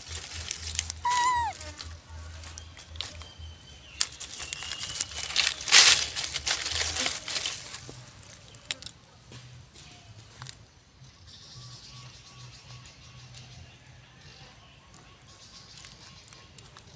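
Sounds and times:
leaves and twigs rustling: 0.0 - 10.7, 14.9 - 16.9.

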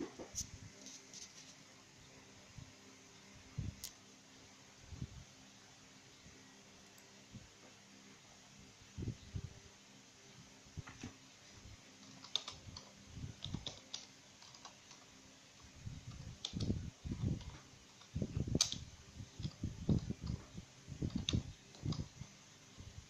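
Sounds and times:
computer keyboard typing: 12.0 - 22.2.

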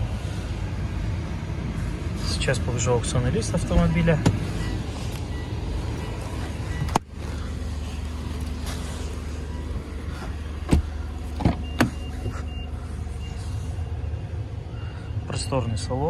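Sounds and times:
steady low hum: 0.0 - 15.8
car door clacks and knocks: 3.7 - 4.5, 10.6 - 12.4.

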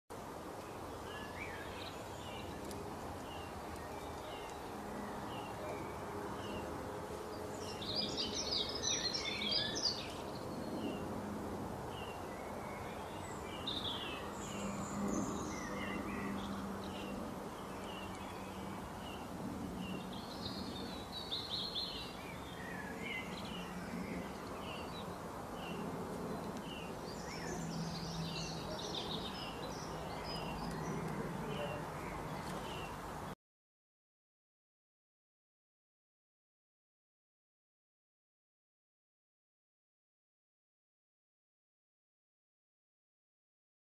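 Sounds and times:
birds chirping: 0.5 - 33.4
bird song bursts: 7.4 - 11.1.

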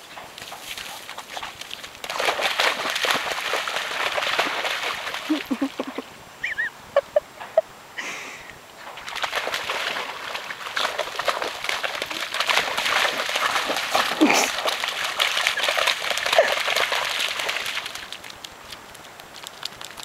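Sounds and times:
dog splashing through mud: 0.0 - 6.1, 8.8 - 20.0
short high cries: 6.4 - 6.7.

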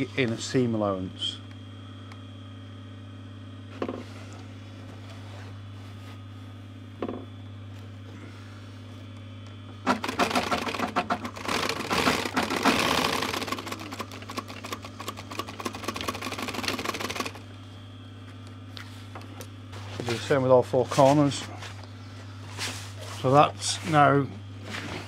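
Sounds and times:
low motor hum: 0.0 - 25.0
sewing machine needle strokes: 9.8 - 17.4.

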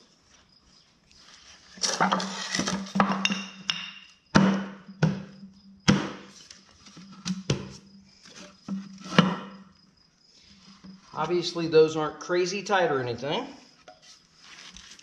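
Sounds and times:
wooden blocks knocking on concrete: 2.9 - 5.2.

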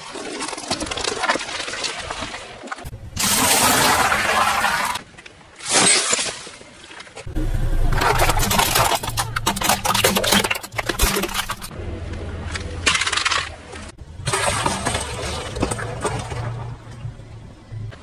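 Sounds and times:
crunching: 7.1 - 11.7
car engine running low: 7.3 - 9.7
plastic toys cracking under tyre: 8.0 - 11.7.

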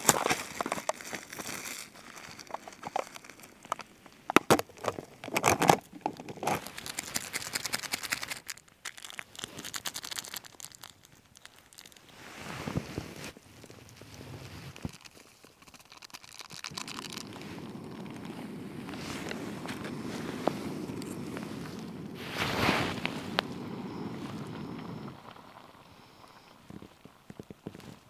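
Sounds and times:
packaging crinkling and tearing: 0.0 - 12.1, 13.3 - 22.2.

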